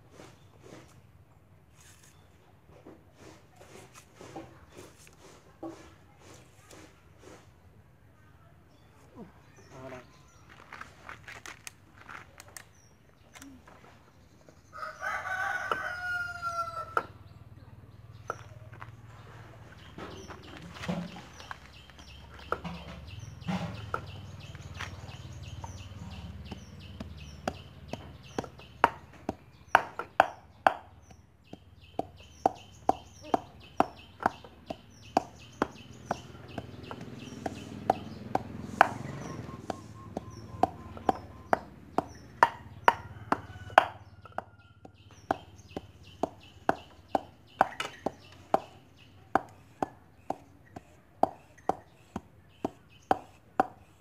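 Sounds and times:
cleaver chopping on wooden block: 26.4 - 54.0.

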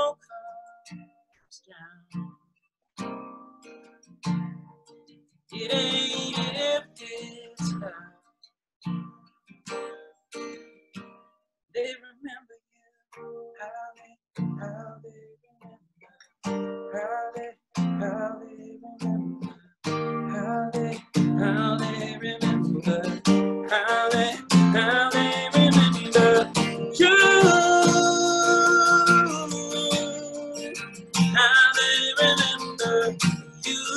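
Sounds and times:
acoustic guitar strumming: 3.0 - 8.2, 8.8 - 11.4, 13.2 - 13.6, 14.4 - 15.0, 16.4 - 33.9.

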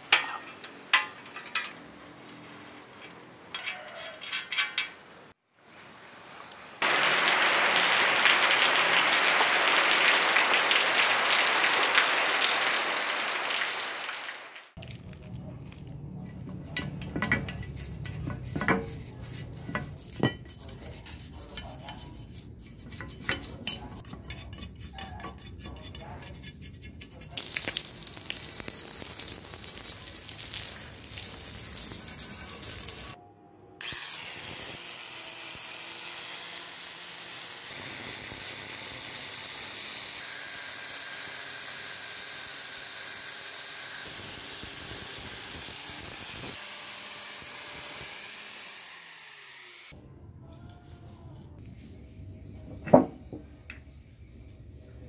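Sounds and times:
brush knocking on tubes: 15.7 - 28.6
toothbrush scrubbing metal frame: 16.2 - 33.2
water jet hissing: 27.4 - 33.2
power tool whining: 33.8 - 50.0.

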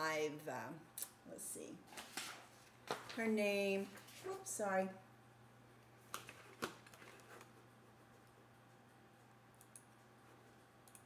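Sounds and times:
low room hum: 0.0 - 11.0
computer mouse clicks: 9.2 - 10.1.

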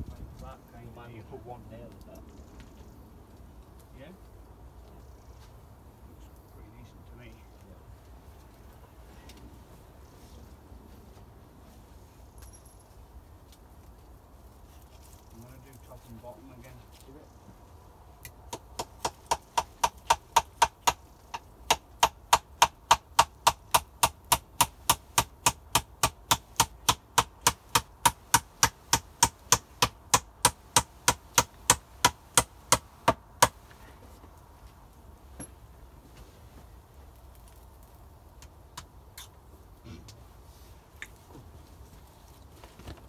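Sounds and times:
hammer driving nails into wood: 18.5 - 33.6.

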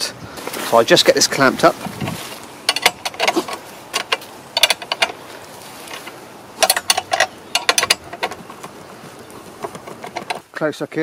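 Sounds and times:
rapid metallic clicking of bolts: 2.7 - 5.2, 6.6 - 8.5.

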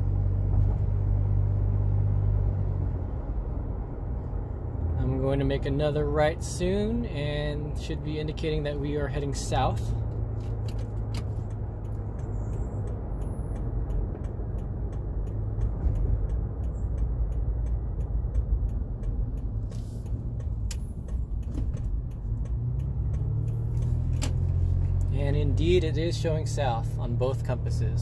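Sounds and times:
car engine and road noise rumble: 0.0 - 28.0
turn signal ticking: 0.1 - 28.0.

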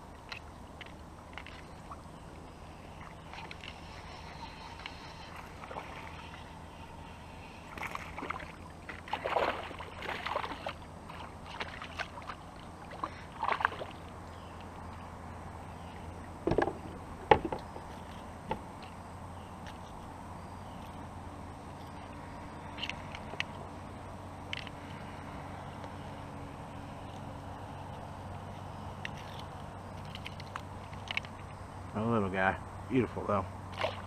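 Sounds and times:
kayak paddle splashing: 0.0 - 15.1, 33.6 - 34.0
knocks on plastic hull: 16.4 - 17.6.

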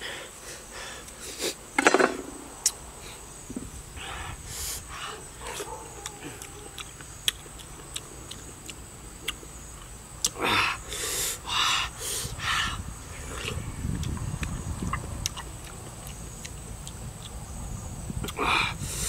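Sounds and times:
wet chewing: 5.1 - 10.4, 13.3 - 17.6.

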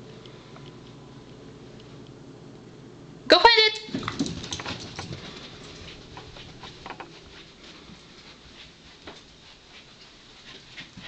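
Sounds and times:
footfalls on carpeted stairs: 3.9 - 11.0.

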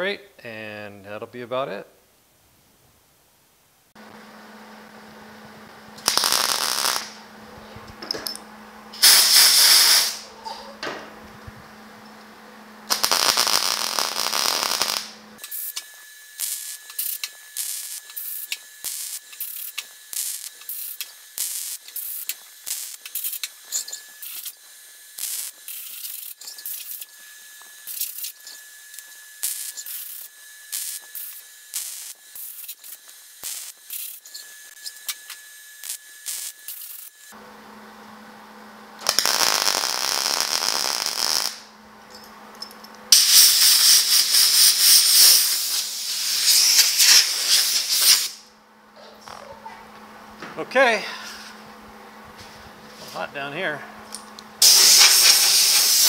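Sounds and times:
welder arc crackling: 4.0 - 8.4, 9.0 - 37.4, 39.0 - 41.7, 43.1 - 48.5, 54.3 - 56.0.

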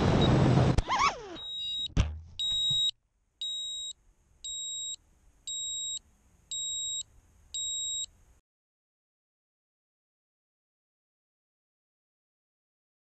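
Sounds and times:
high buzzer beeps: 1.4 - 3.9, 4.5 - 7.0, 7.6 - 8.1.

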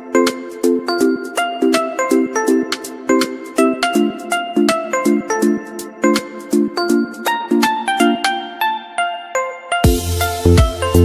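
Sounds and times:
background music with chords: 0.0 - 11.0.

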